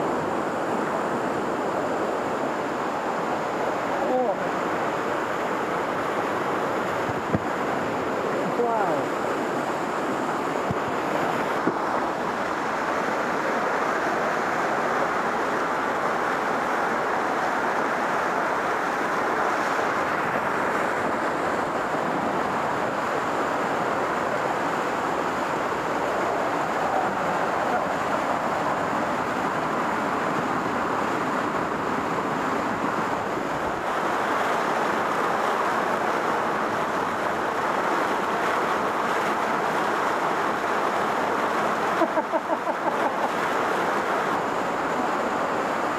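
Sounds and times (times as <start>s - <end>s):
waterfall pouring over rocks: 0.0s - 31.9s, 32.6s - 45.9s.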